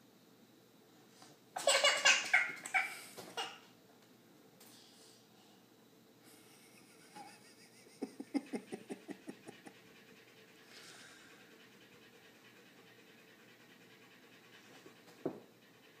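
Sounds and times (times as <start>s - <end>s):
dog panting: 6.3s - 16.0s.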